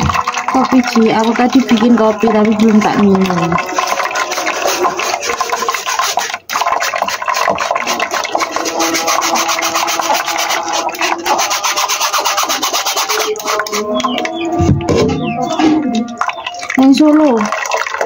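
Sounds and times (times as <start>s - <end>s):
wire-mesh sieve rasping: 0.0s - 14.3s.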